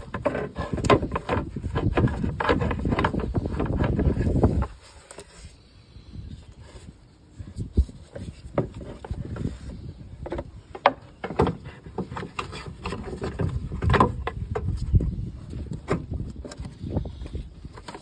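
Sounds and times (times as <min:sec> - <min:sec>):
hollow plastic knocks and clunks: 0:00.0 - 0:04.8, 0:08.2 - 0:15.0.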